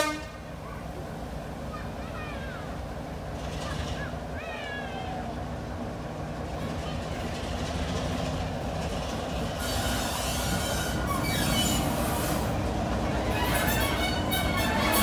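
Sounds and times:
diesel locomotive engine running: 0.0s - 15.0s
wheels clicking over rail joints: 3.2s - 4.3s, 6.2s - 15.0s
high wheel squeals: 9.6s - 15.0s.

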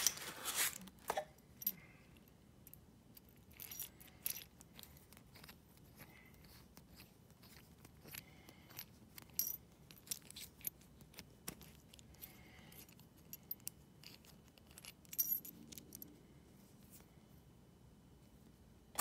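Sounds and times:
metallic clicks and clinks: 1.6s - 5.6s, 8.0s - 10.8s, 11.5s - 16.2s.

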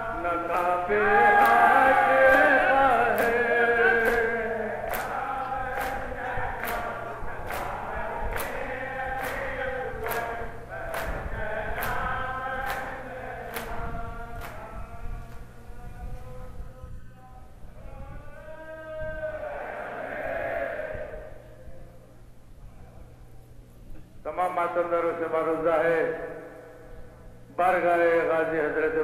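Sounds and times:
crowd of men chanting: 0.0s - 14.8s, 19.0s - 21.5s
hands slapping chests: 3.1s - 3.4s, 4.0s - 4.3s, 4.9s - 8.6s, 9.2s - 10.3s, 10.9s - 11.2s, 11.8s - 13.8s.

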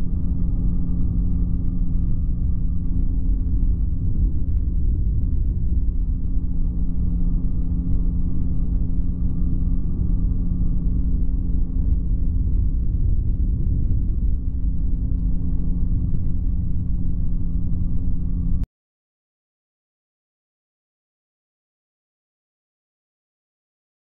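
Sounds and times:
microlight engine droning: 0.0s - 18.6s
wind rumble on microphone: 0.0s - 18.7s.

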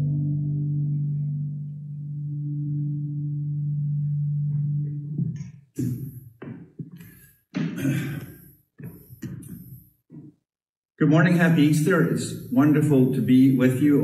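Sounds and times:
sustained musical chord: 0.0s - 5.3s.

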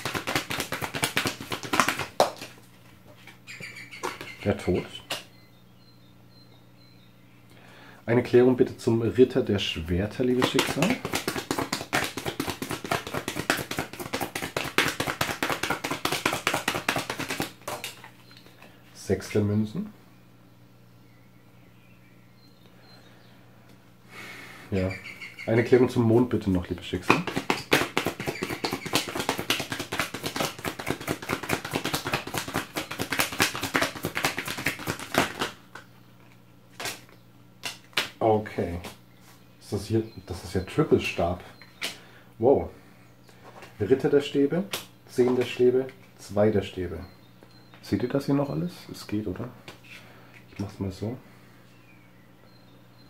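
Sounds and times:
cards being shuffled: 0.0s - 3.4s, 10.3s - 18.7s, 27.1s - 38.2s.

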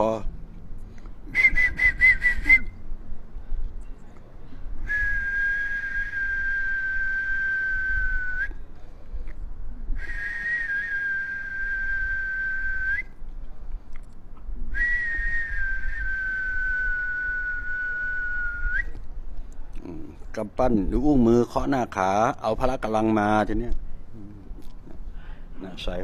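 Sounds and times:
person whistling long notes: 1.2s - 2.8s, 4.8s - 8.6s, 10.0s - 13.2s, 14.7s - 19.0s.

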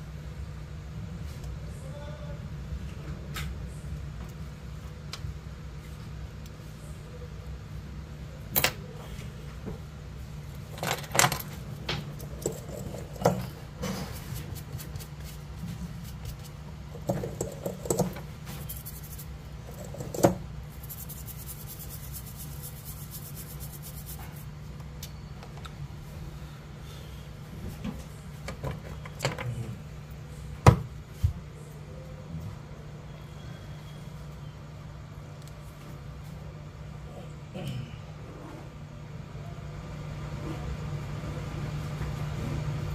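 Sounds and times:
steady low hum: 0.0s - 42.9s.

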